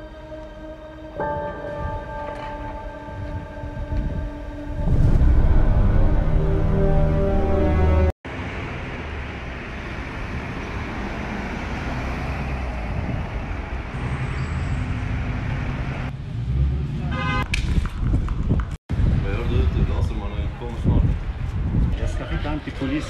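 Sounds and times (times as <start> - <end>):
city traffic: 0.0 - 23.0.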